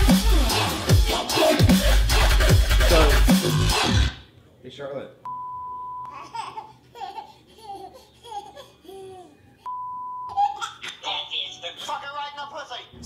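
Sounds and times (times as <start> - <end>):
censor beep: 5.3 - 6.1, 9.7 - 10.3
baby babbling and giggling: 6.1 - 9.4, 10.3 - 11.3.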